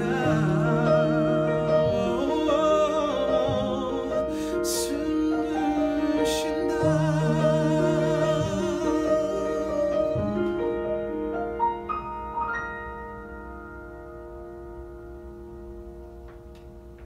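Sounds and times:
grand piano: 0.0 - 17.0.

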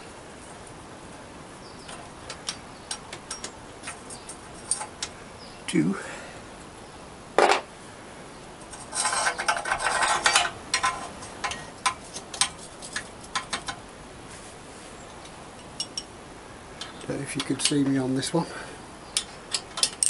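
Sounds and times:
tools rattling: 8.7 - 13.8, 19.2 - 20.0.

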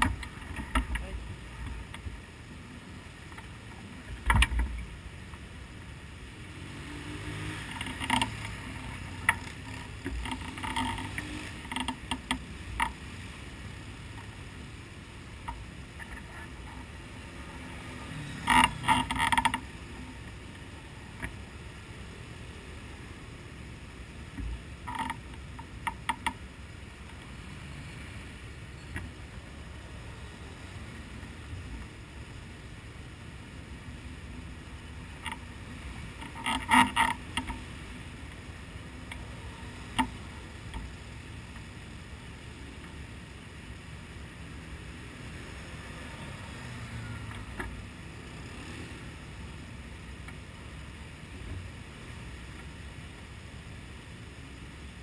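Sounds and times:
harness hardware clicking and creaking: 0.0 - 2.2, 3.3 - 5.4, 7.6 - 13.0, 15.4 - 21.4, 24.3 - 26.4, 35.1 - 37.7.

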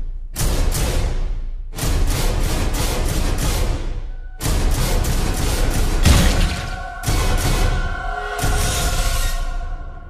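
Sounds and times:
film soundtrack music: 0.0 - 10.0
loud crashing hit: 6.0 - 7.7.

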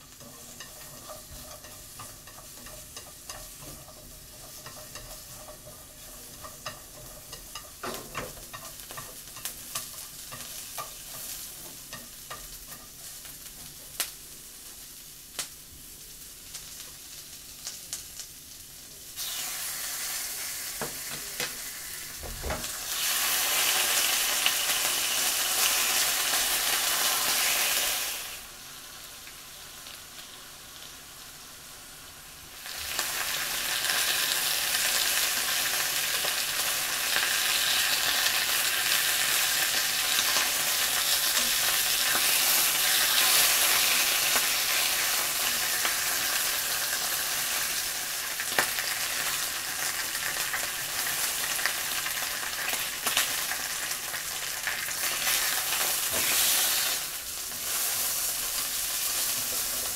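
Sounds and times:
meat sizzling in frying oil: 0.0 - 59.9.

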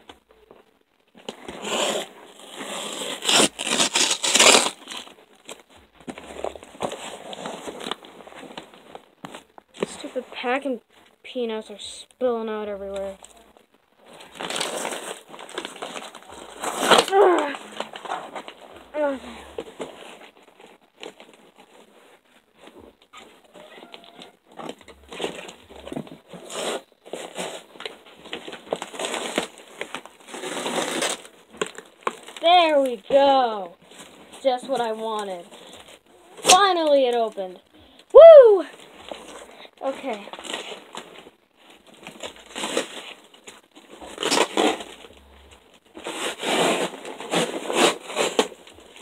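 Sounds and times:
cardboard box and packing rustling: 0.1 - 10.2, 12.9 - 37.6, 38.6 - 49.0.

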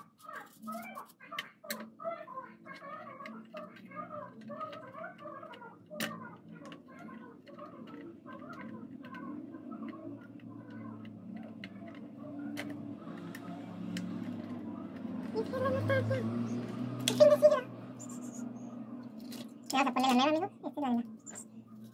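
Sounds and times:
plastic and metal parts clicking: 0.0 - 2.0, 2.7 - 15.4
birds chirping: 0.0 - 21.9.

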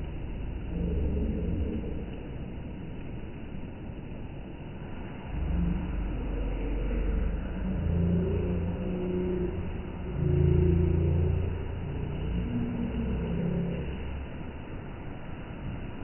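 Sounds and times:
thunder rumbling: 5.2 - 14.6.

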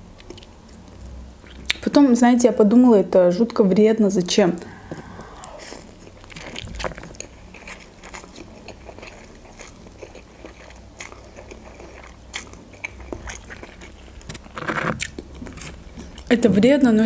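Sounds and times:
chewing: 0.2 - 1.8, 4.6 - 16.4.

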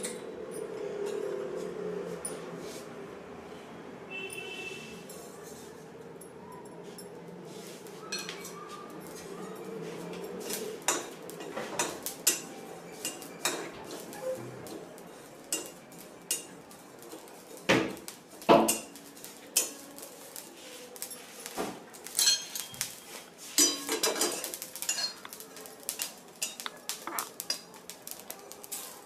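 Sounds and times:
spatula scraping seeds in metal pan: 26.4 - 27.4.

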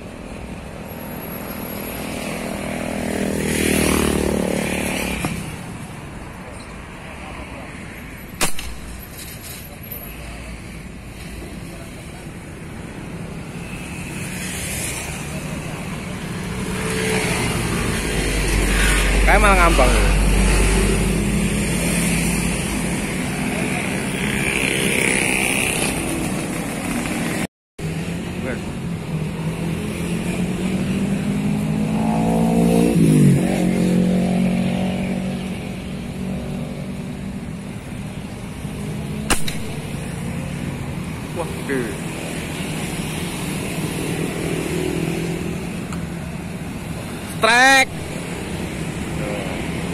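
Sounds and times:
road traffic rumble: 0.0 - 49.9
vehicle passing: 2.0 - 5.8, 29.2 - 37.1
airgun firing crack: 8.4 - 9.4, 39.3 - 39.9.

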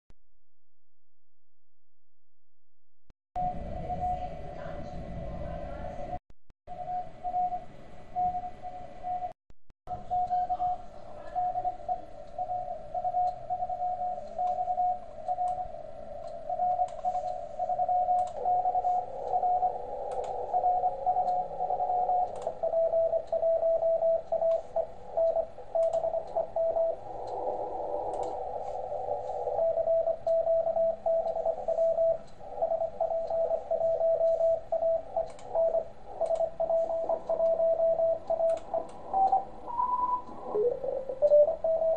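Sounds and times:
morse code tone: 6.7 - 41.9
radio band hiss: 15.7 - 22.6, 24.6 - 30.0, 31.3 - 35.2, 35.9 - 37.4, 38.6 - 41.9
faint clicks: 18.1 - 18.6, 19.2 - 22.6, 28.1 - 28.4, 35.2 - 37.6, 38.3 - 39.5.

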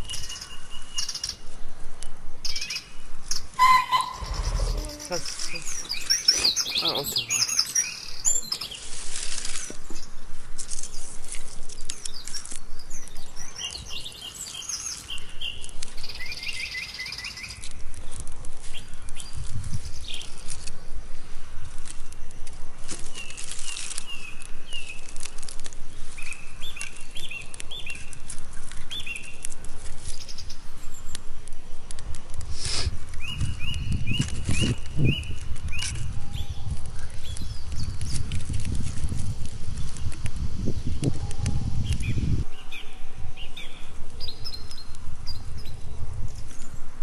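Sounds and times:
small birds chirping: 2.4 - 21.0, 23.0 - 31.3, 32.6 - 46.8
campfire crackling and popping: 20.1 - 36.0, 36.7 - 42.0.

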